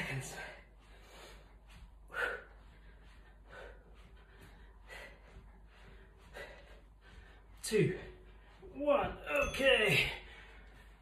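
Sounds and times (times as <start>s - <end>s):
man breathing hard: 0.2s - 8.6s.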